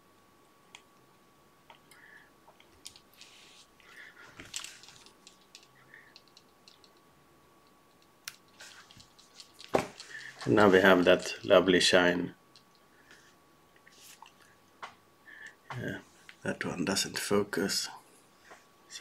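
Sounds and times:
hands rustling thread: 2.5s - 7.0s, 7.9s - 11.5s
faint clicks: 2.6s - 7.0s.

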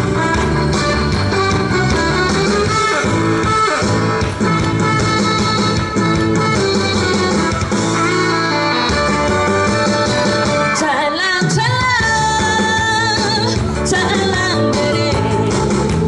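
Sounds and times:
amplified band accompaniment: 0.0s - 16.0s
woman singing into microphone: 10.7s - 16.0s.

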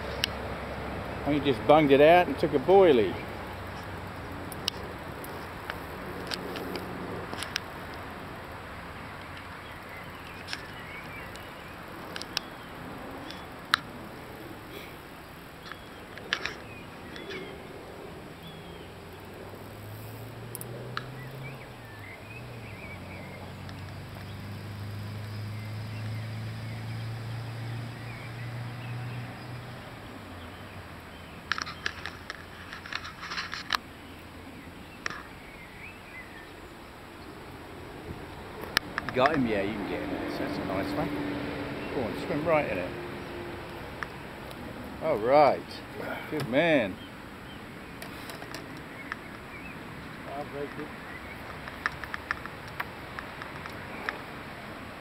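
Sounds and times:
sharp clicks: 10.2s - 12.6s, 50.7s - 54.2s
faint bird chirps: 14.6s - 20.3s.

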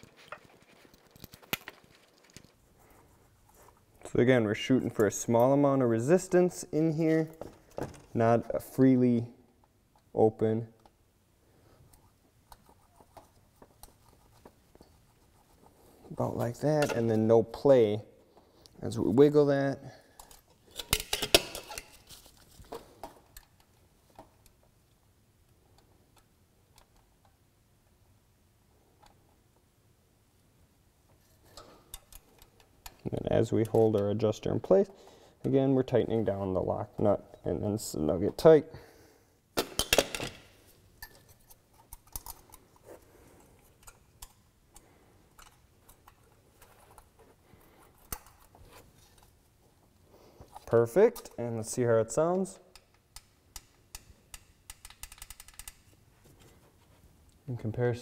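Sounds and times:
metal tools clicking: 52.7s - 55.9s.

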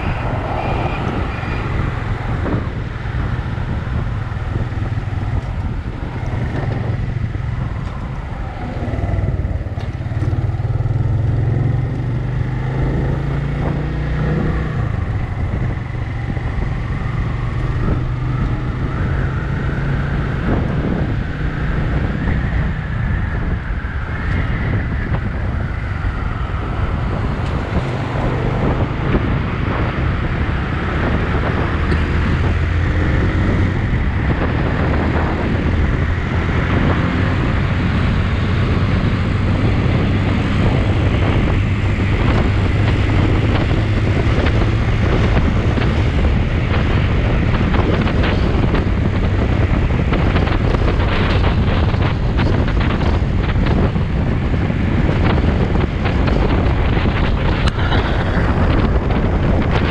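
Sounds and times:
road noise: 0.0s - 59.9s
vehicle engine drone: 0.0s - 59.9s.

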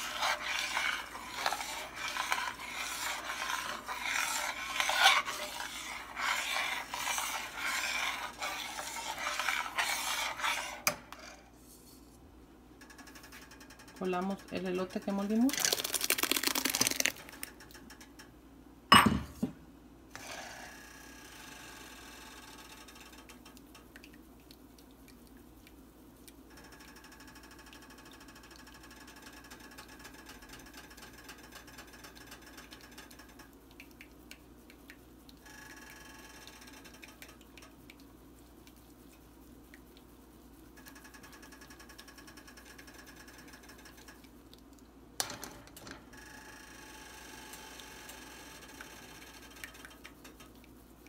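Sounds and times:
pulp poured into strainer: 15.5s - 17.5s.

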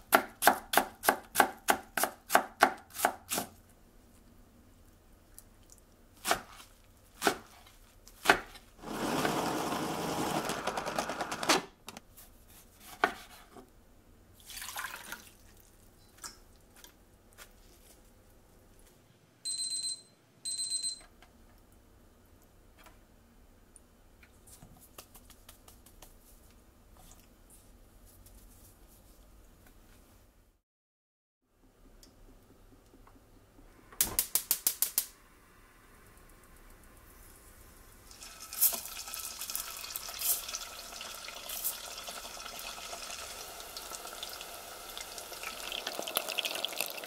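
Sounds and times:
water running into a pot: 14.4s - 15.7s, 38.0s - 47.0s.

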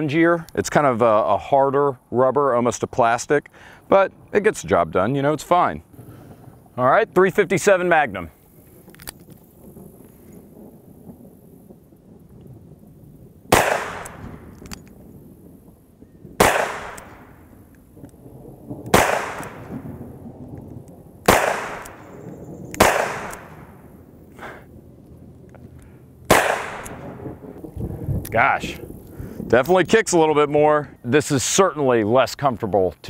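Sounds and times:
revolver gunshots with echo: 13.5s - 14.8s, 16.4s - 17.6s, 18.9s - 20.0s, 21.2s - 24.0s, 26.3s - 27.6s.

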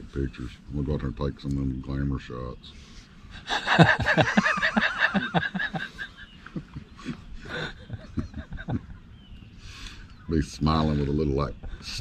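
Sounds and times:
men laughing: 3.3s - 9.2s.

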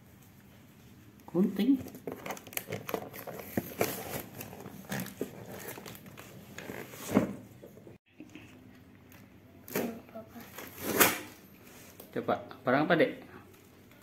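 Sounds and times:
cardboard box rustling and scraping: 3.1s - 7.7s.

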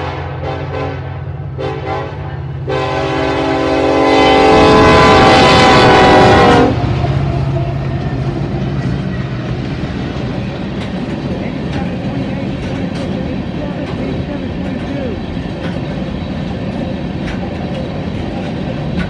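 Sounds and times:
locomotive air horn blasts: 0.0s - 6.8s
train wheels rumbling on rail: 0.0s - 19.0s.

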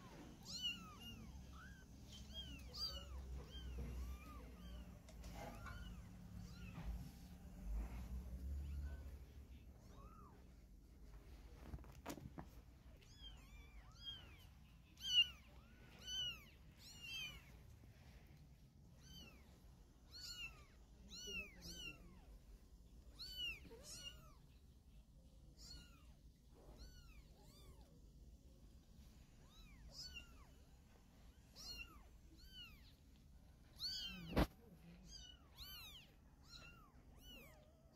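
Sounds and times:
kittens mewing: 0.0s - 7.0s, 33.7s - 37.8s.

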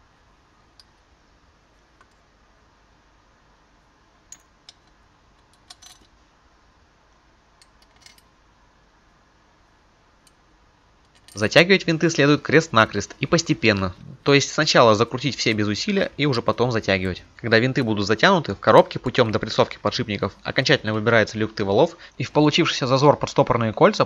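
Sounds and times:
metal screws clicking: 7.6s - 8.3s.

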